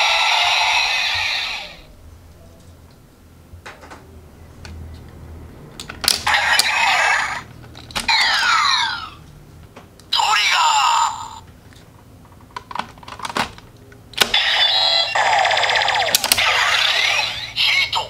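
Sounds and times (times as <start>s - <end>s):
toy electronic sound effects: 0.0s - 1.8s, 6.2s - 7.5s, 8.1s - 9.2s, 14.2s - 18.0s.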